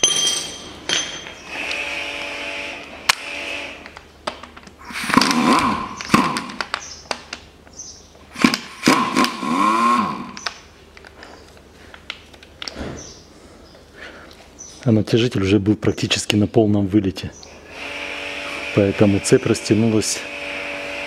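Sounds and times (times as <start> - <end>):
pneumatic impact wrench rattling: 4.8 - 7.0, 8.3 - 10.6.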